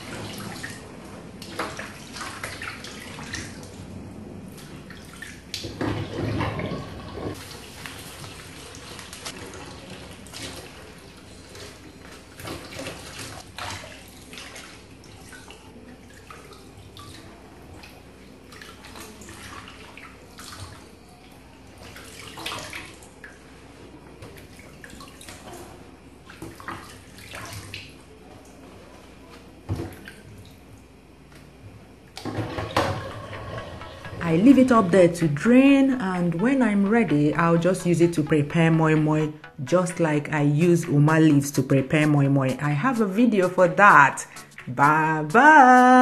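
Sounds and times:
water splashing in a sink: 0.0s - 35.0s.

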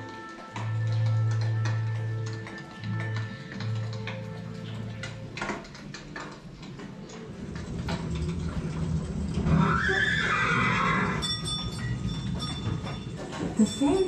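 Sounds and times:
horse whinny: 9.4s - 11.3s.

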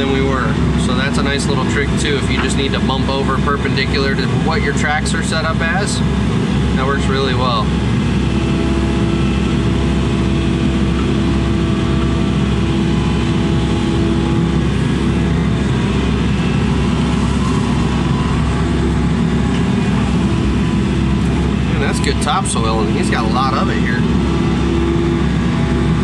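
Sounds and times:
excavator engine and hydraulics running: 0.0s - 26.0s
steady whine: 0.0s - 26.0s.

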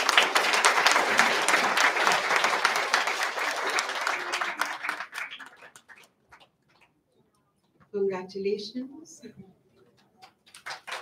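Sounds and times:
audience applauding: 0.0s - 7.0s, 10.2s - 11.0s.

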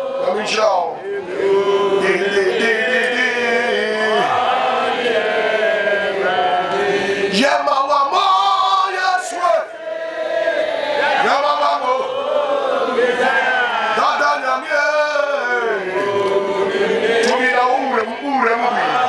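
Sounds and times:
man singing a chant: 0.0s - 4.4s, 6.9s - 9.7s, 11.2s - 12.1s, 13.1s - 19.0s.

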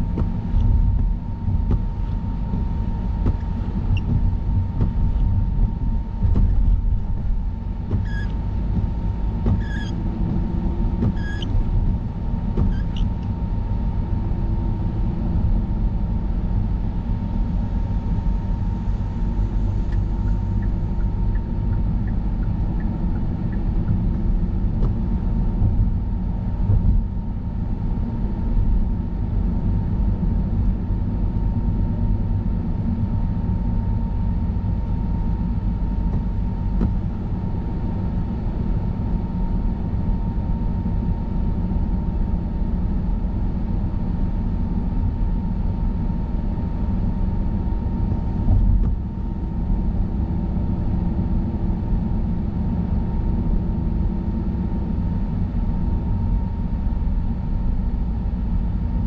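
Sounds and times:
low thump of tyres over bump: 0.0s - 13.5s
faint steady whine: 0.0s - 59.0s.

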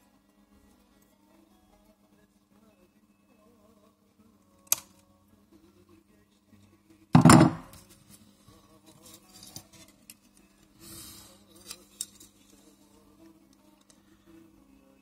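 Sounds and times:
sharp knock on table: 7.2s - 7.7s.

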